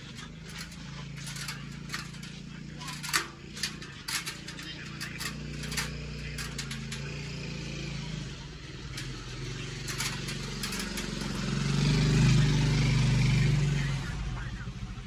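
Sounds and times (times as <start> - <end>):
sharp clicks: 0.0 - 7.2
vehicle engine running: 0.0 - 15.0.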